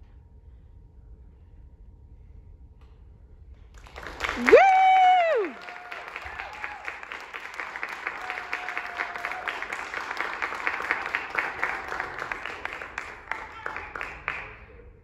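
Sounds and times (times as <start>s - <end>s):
audience applauding: 3.8s - 14.7s.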